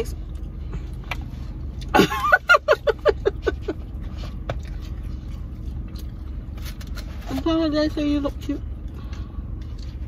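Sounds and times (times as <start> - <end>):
car engine idling: 0.0 - 10.0
woman laughing: 1.9 - 3.9.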